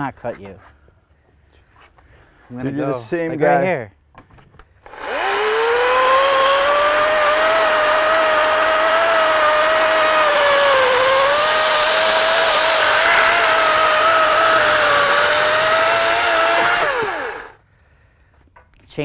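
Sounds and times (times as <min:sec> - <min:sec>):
electric chainsaw cutting log: 0:04.8 - 0:17.6.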